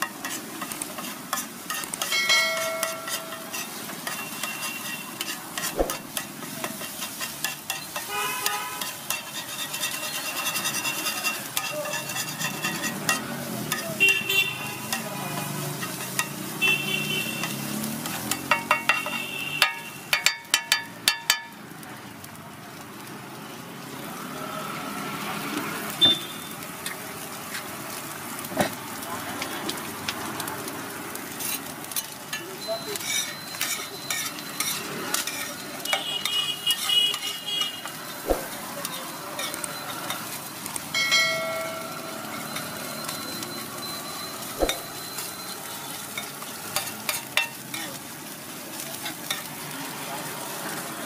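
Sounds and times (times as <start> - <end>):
metal spatula scraping iron: 0.0 - 13.9, 33.0 - 36.0, 36.7 - 40.4
egg sizzling on griddle: 0.0 - 51.0.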